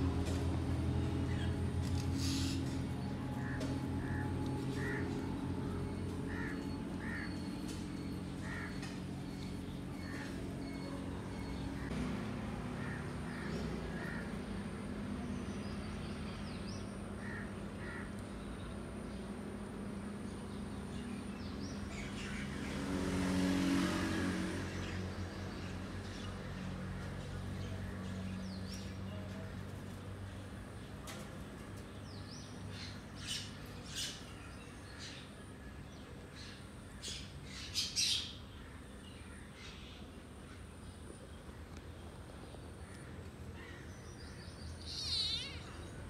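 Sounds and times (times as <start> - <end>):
vehicle engine passing: 0.0 - 30.6.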